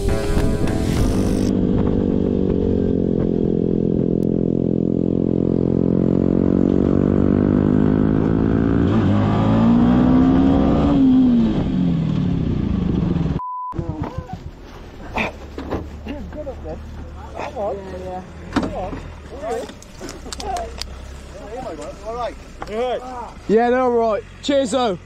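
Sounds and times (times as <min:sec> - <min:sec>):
motorcycle engine revving: 0:00.0 - 0:13.4.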